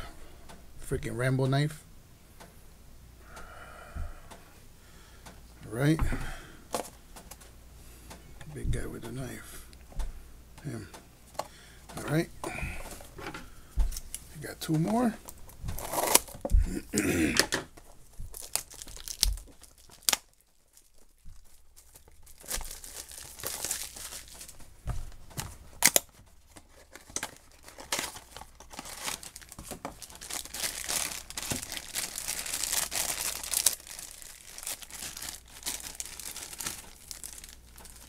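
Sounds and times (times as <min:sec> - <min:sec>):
crinkly wrapper rustling: 0:13.9 - 0:38.0
cardboard box tearing: 0:15.8 - 0:16.3.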